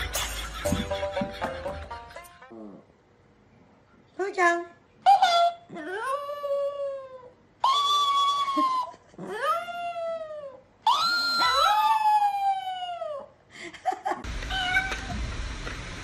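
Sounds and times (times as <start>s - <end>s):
background music: 0.0s - 2.6s
dog howling: 5.8s - 13.3s.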